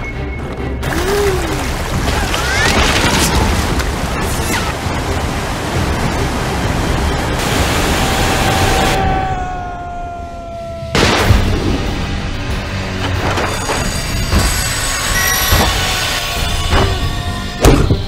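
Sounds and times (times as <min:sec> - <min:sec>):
waterfall rushing: 0:00.8 - 0:10.0.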